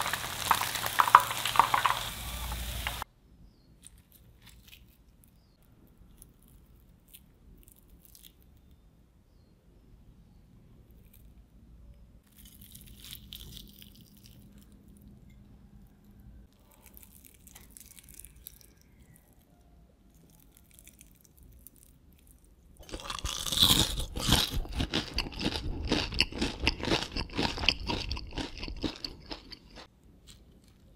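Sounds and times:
crispy chicken crackling: 0:00.0 - 0:03.0, 0:12.2 - 0:15.1, 0:16.5 - 0:30.9
loud crunching chewing: 0:00.0 - 0:03.0, 0:16.6 - 0:19.3, 0:22.8 - 0:30.9.

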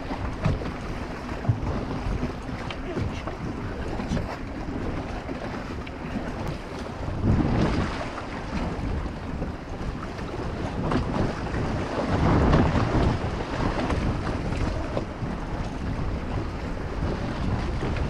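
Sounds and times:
choppy water splashing: 0:00.0 - 0:18.0
wind buffeting microphone: 0:00.0 - 0:18.0.

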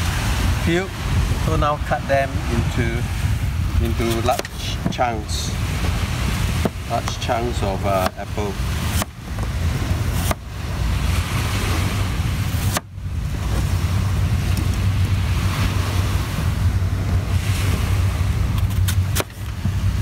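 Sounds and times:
surf washing: 0:00.0 - 0:20.0
wind buffeting microphone: 0:00.0 - 0:20.0.

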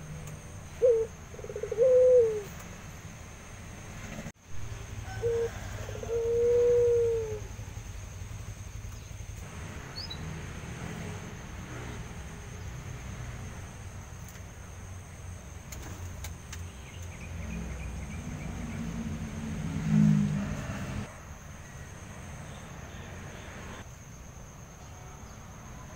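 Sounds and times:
dove cooing: 0:00.7 - 0:02.5, 0:05.0 - 0:07.6.

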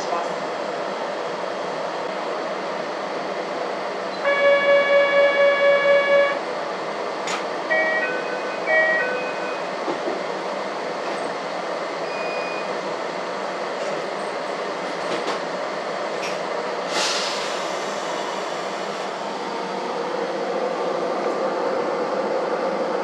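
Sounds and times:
train running hum: 0:00.0 - 0:23.0.

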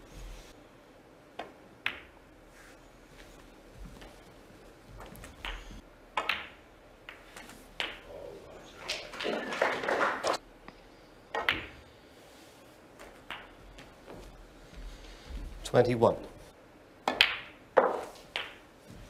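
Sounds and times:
snooker balls clicking: 0:01.4 - 0:02.2, 0:04.9 - 0:08.1, 0:11.3 - 0:11.8, 0:13.0 - 0:14.2, 0:17.0 - 0:18.7.

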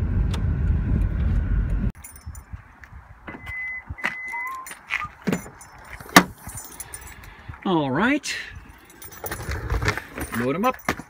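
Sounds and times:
car road noise: 0:00.0 - 0:07.8
keys jangling: 0:02.0 - 0:02.5, 0:04.3 - 0:07.4, 0:08.7 - 0:11.0
short high beeps: 0:03.4 - 0:05.2.

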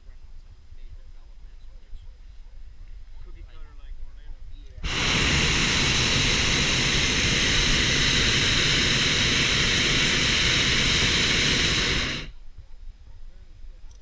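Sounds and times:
propane burner blast: 0:04.8 - 0:12.4.

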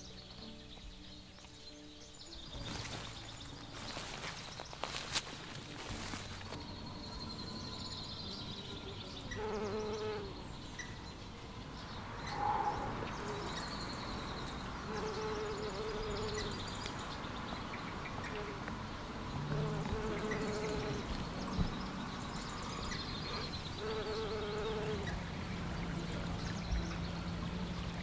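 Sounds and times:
bumblebee buzzing: 0:08.2 - 0:10.6, 0:13.1 - 0:16.8, 0:18.2 - 0:18.7, 0:19.3 - 0:21.8, 0:22.4 - 0:25.3.

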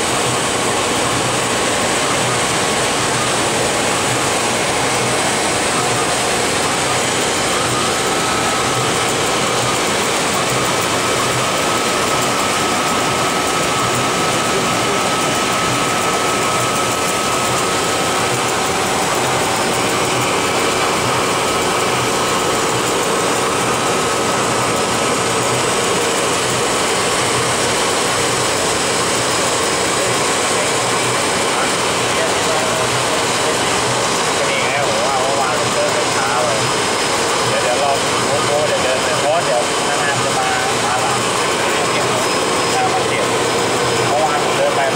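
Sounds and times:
machine blower rushing with steady tones: 0:00.0 - 0:44.9.

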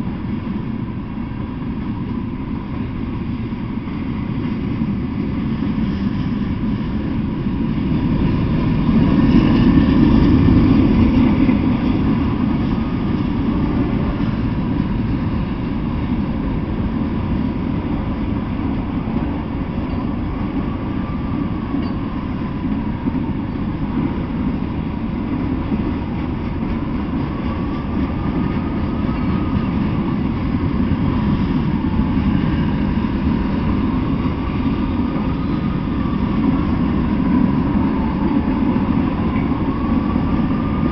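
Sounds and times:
freight train cars rumbling past: 0:00.0 - 0:40.9
faint wavering squeal: 0:19.7 - 0:22.7, 0:27.1 - 0:40.9.

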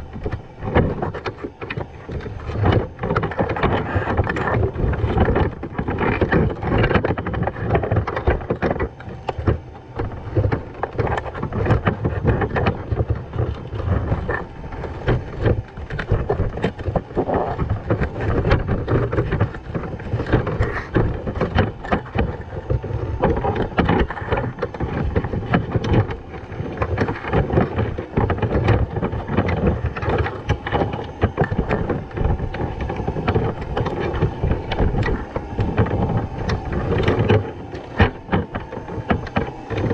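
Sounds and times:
underwater crackling and clicking: 0:00.0 - 0:39.9
underwater rumble of moving water: 0:00.0 - 0:39.9.

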